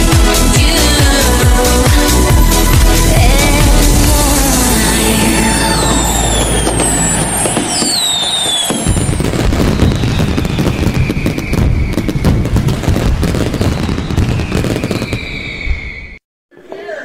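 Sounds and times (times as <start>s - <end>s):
fireworks crackling and banging: 0.0s - 16.1s
falling firework whistles: 4.9s - 16.2s.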